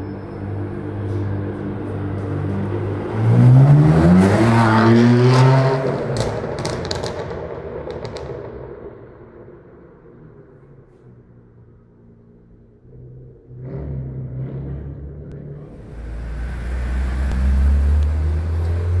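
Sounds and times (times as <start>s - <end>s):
car engine revving: 0.0s - 8.4s, 12.5s - 19.0s
exhaust cracks: 6.0s - 11.0s, 14.6s - 19.0s.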